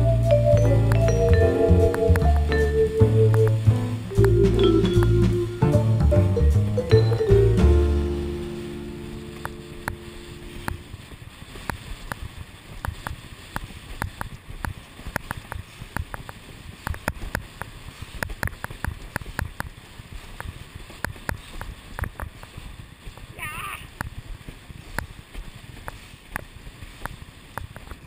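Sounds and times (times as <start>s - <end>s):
water rushing: 0.4s - 14.0s.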